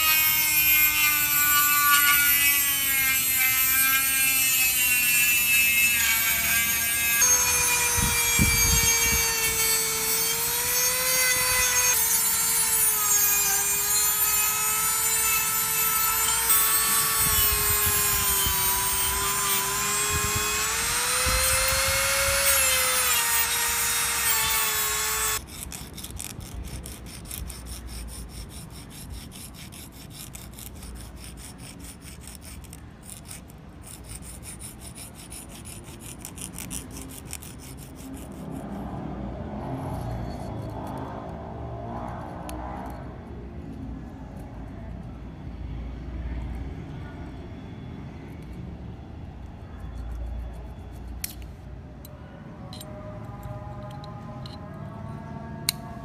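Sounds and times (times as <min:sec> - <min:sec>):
power tool whining: 0:00.0 - 0:25.4.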